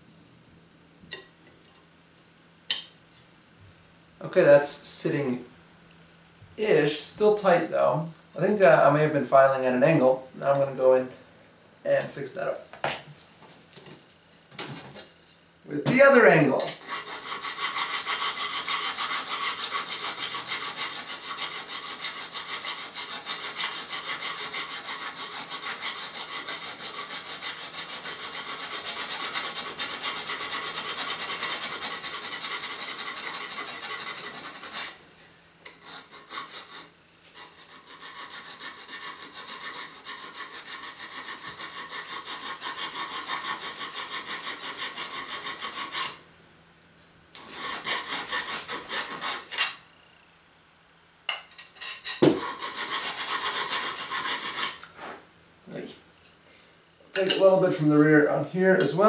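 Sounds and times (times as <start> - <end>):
file rasping on sheet metal: 16.5 - 35.0, 35.7 - 46.2, 47.4 - 49.8, 51.8 - 54.8.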